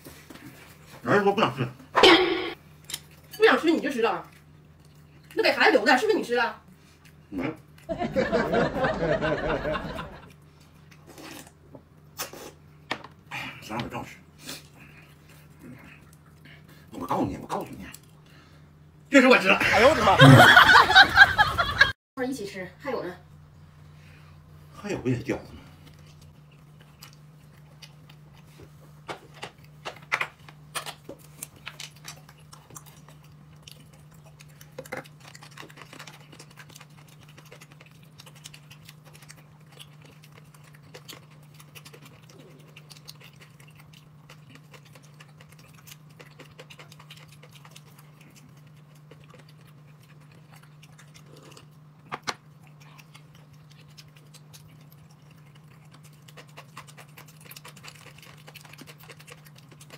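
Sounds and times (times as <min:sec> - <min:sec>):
steady low hum: 0:00.0 - 0:59.9
person chewing: 0:02.0 - 0:03.4, 0:04.3 - 0:05.4, 0:06.7 - 0:07.9, 0:10.2 - 0:12.7, 0:14.2 - 0:18.5, 0:25.6 - 0:59.9.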